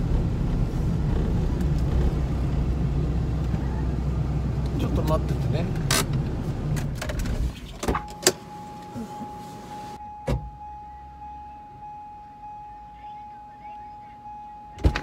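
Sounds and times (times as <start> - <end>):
car warning chime: 8.0 - 15.0.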